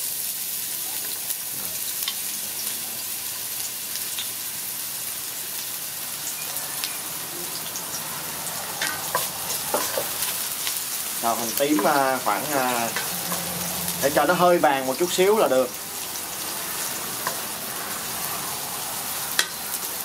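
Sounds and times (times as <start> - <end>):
shallots sizzling in oil: 0.0 - 20.0
wooden spatula stirring in pan: 7.6 - 15.2, 16.0 - 19.6.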